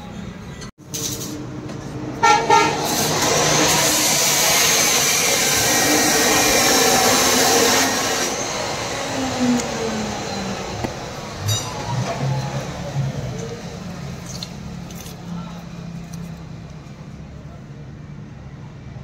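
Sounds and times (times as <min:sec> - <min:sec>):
loud rushing noise: 0:01.0 - 0:14.2
vehicle horn toots: 0:02.2 - 0:03.0.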